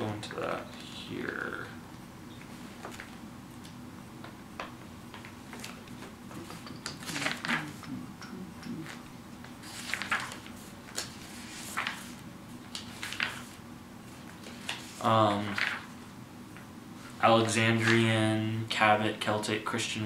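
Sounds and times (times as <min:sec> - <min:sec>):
book pages rustling: 0:02.4 - 0:03.8, 0:05.1 - 0:07.9, 0:08.8 - 0:16.0.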